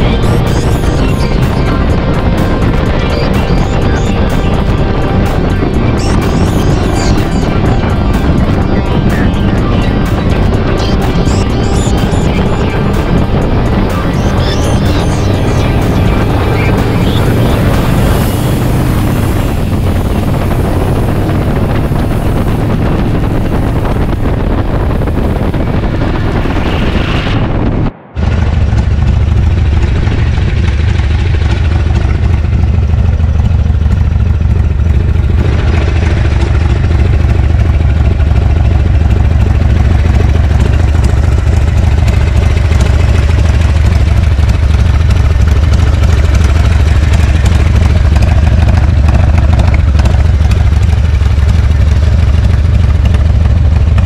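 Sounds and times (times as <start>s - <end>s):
motorcycle engine idling: 0.0s - 26.4s, 28.2s - 54.0s
motorcycle riding noise: 0.0s - 54.0s
wind on microphone: 12.4s - 54.0s.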